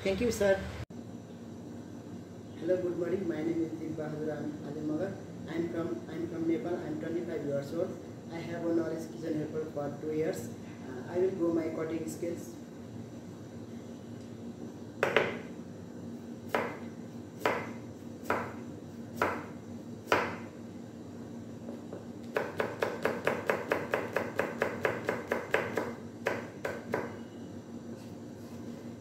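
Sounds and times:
knife chopping carrot on board: 16.5 - 16.8, 17.4 - 18.6, 19.2 - 20.5, 22.3 - 27.2.

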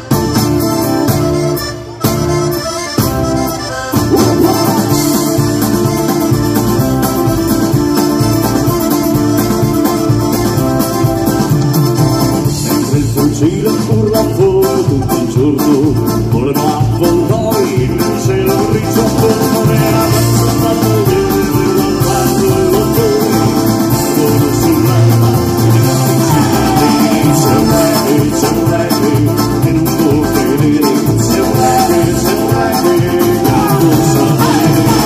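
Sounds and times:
accordion: 0.0 - 35.0
acoustic guitar: 0.0 - 35.0.

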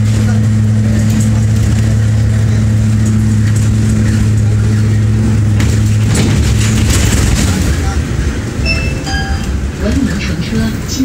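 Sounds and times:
rough noisy rattle: 0.0 - 8.6
bus engine humming: 0.0 - 11.0.

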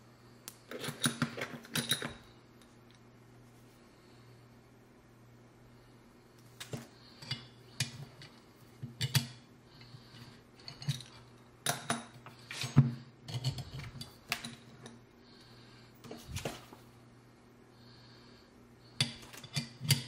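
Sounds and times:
metal parts clicking and clinking: 0.7 - 3.0, 10.6 - 15.0.

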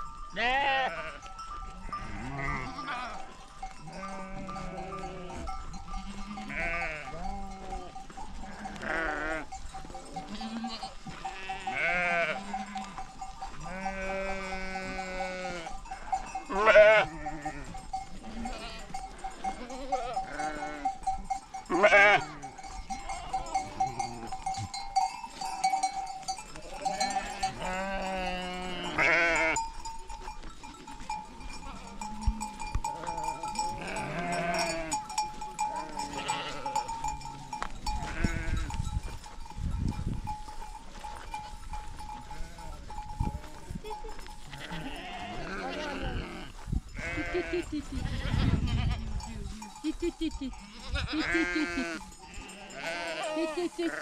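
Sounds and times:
steady ringing tone: 0.0 - 44.2
sheep bleating: 0.4 - 25.6, 26.6 - 29.7, 31.5 - 38.7, 42.3 - 49.9, 50.6 - 54.0.

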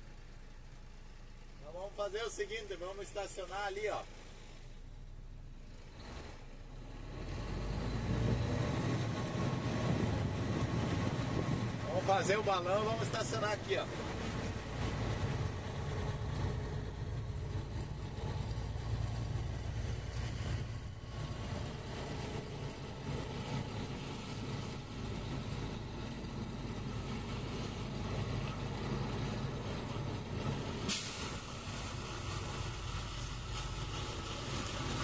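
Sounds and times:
diesel engine running: 5.6 - 35.0
sudden hiss: 30.9 - 33.8.

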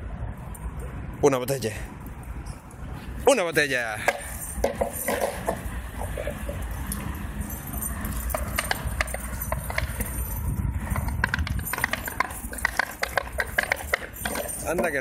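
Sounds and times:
leash clinking on concrete: 2.0 - 15.0
dog claws on concrete: 7.9 - 10.3, 10.9 - 15.0.

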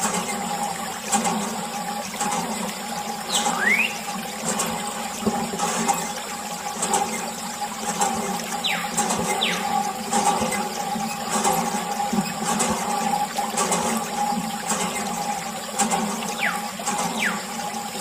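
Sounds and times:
hose water splashing: 0.0 - 18.0
whistle-like glides: 3.3 - 4.0.

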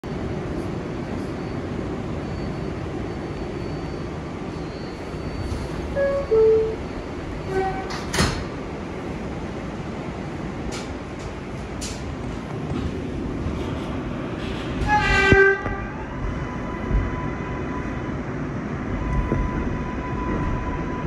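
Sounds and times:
subway car hum: 0.0 - 21.0
sliding doors shutting: 5.0 - 9.3.

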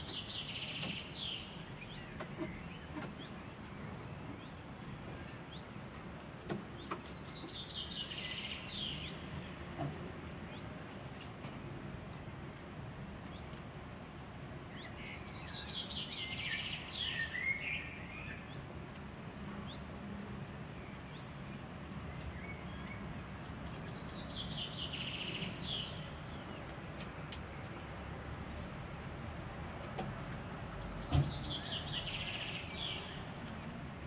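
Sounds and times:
low background noise: 0.0 - 34.0.

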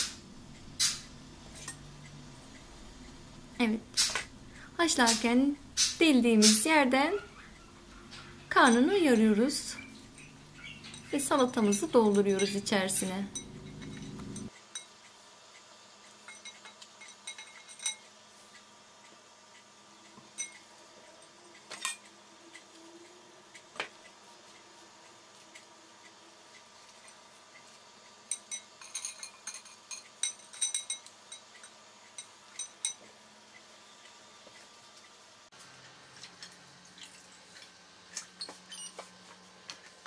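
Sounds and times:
metal bangles clinking: 10.1 - 14.5, 28.3 - 33.0.

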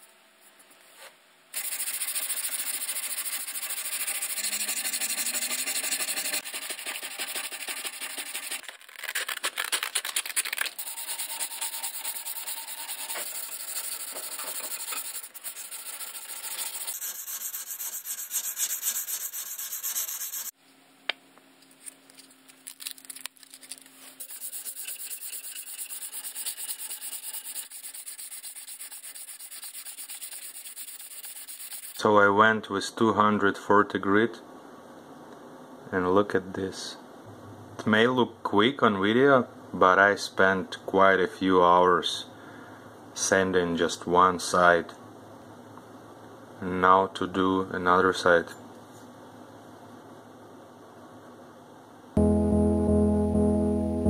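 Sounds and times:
marker writing on metal: 1.6 - 8.6, 10.8 - 20.5, 24.2 - 32.0
sandpaper scraping steel: 1.6 - 20.5, 23.7 - 32.0.

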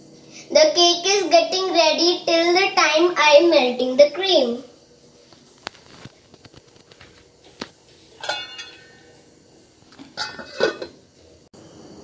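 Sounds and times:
metal lid clanking on pan: 8.2 - 9.1, 10.0 - 11.0.

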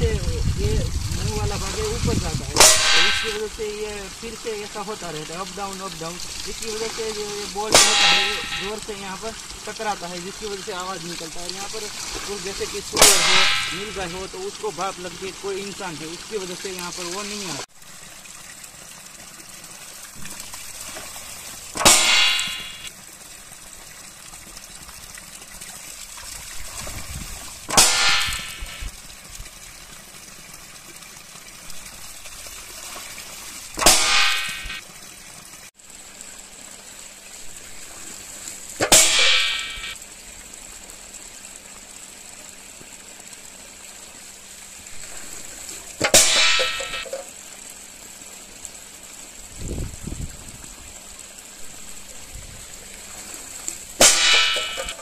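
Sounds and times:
running water: 0.0 - 55.0
wooden seesaw striking hard: 2.5 - 3.4, 7.7 - 8.8, 13.0 - 14.0, 21.8 - 22.9, 27.7 - 28.9, 33.8 - 34.8, 38.8 - 40.0, 46.0 - 47.2, 54.0 - 55.0.

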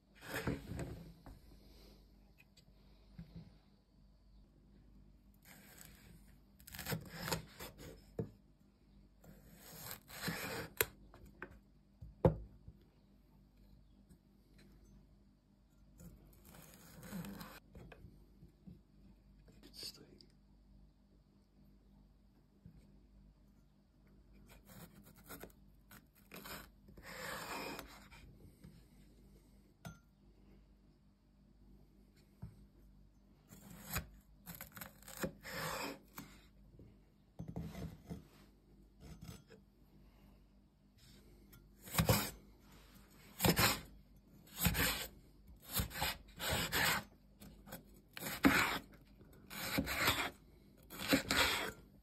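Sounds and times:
knife scraping slice: 6.6 - 7.9, 9.4 - 10.9, 16.4 - 17.6, 24.5 - 28.1, 33.5 - 36.4, 41.8 - 42.4, 43.4 - 43.9, 44.5 - 47.1, 47.7 - 48.9, 49.5 - 51.8
knife slicing bell pepper: 6.6 - 8.0, 41.8 - 42.4, 43.4 - 43.9, 44.5 - 47.1, 47.7 - 48.9, 49.5 - 51.8.

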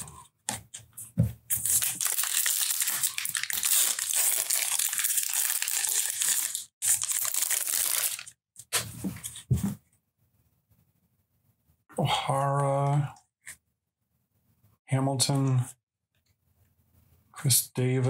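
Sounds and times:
plastic wrapper crinkling and tearing: 1.5 - 8.4.

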